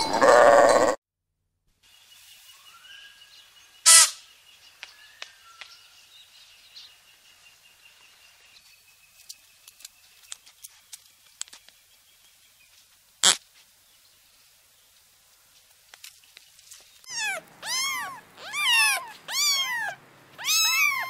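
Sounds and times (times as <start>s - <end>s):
birds calling: 2.5s - 12.4s, 16.2s - 21.0s
loud sharp bird calls: 2.7s - 6.1s, 17.1s - 21.0s.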